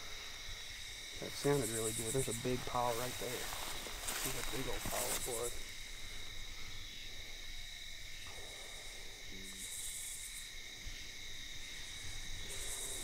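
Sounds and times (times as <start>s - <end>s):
night insects trilling: 0.0s - 13.0s
grass rustling underfoot: 1.2s - 6.0s.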